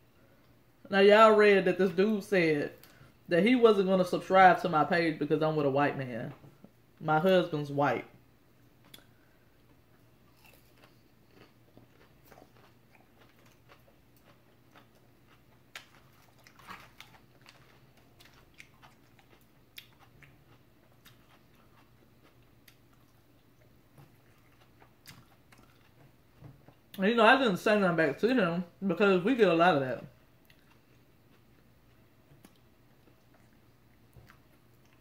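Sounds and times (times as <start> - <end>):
person chewing and crunching food: 8.8 - 27.0, 30.2 - 35.0.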